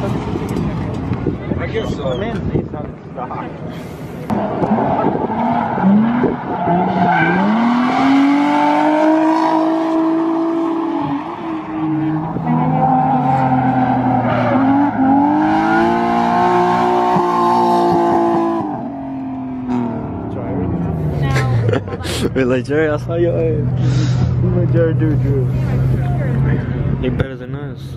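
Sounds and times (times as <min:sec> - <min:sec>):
car engine revving hard: 0:04.3 - 0:20.2.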